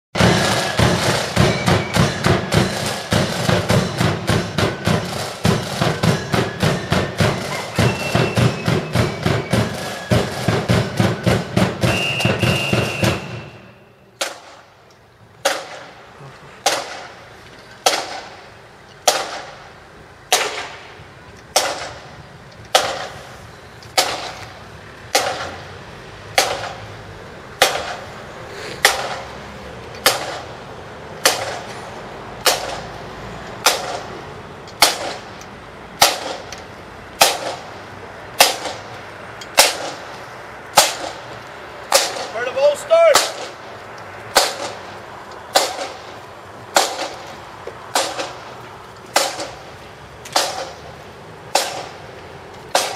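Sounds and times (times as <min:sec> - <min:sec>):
snare drums beating together: 0:00.2 - 0:13.6, 0:41.9 - 0:43.6, 0:45.5 - 0:46.0.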